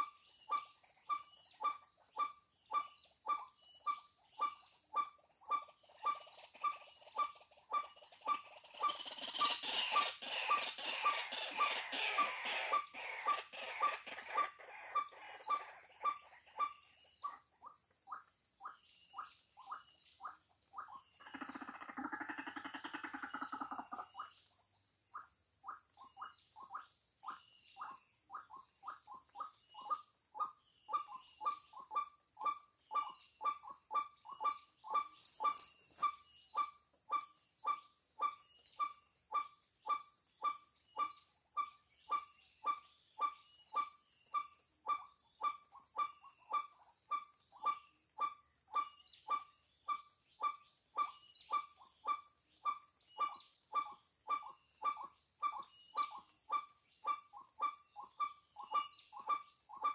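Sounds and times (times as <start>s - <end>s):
high insect buzz: 34.9s - 36.3s.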